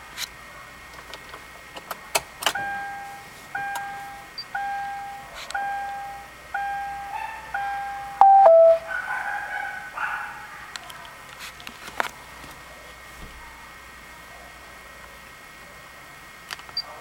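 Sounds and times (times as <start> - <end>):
car warning chime dings: 2.6 - 8.9.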